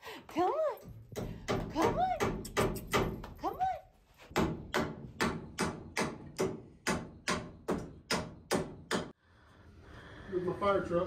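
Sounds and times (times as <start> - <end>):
hammer driving nail into wood: 4.3 - 9.2.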